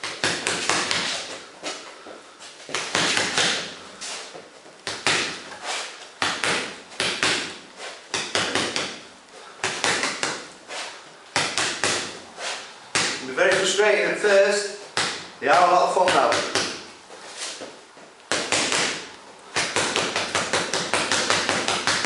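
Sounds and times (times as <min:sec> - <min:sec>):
boxing gloves punching a ball: 0:00.0 - 0:01.8, 0:02.7 - 0:03.8, 0:04.8 - 0:05.6, 0:06.2 - 0:10.6, 0:11.3 - 0:12.3, 0:12.9 - 0:13.8, 0:14.9 - 0:15.4, 0:16.0 - 0:16.9, 0:18.3 - 0:22.0.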